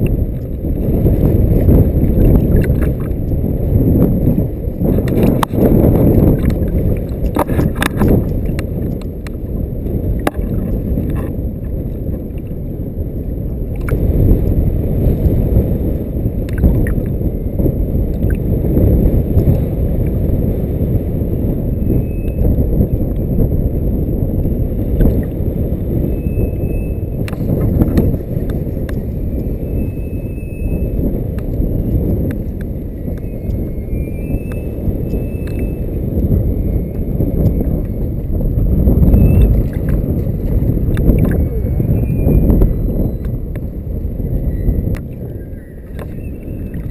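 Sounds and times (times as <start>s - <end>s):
water lapping against float tube: 0.0s - 14.1s, 16.4s - 17.2s, 27.2s - 29.6s, 34.5s - 42.0s, 43.2s - 46.9s
wind buffeting microphone: 0.0s - 46.9s.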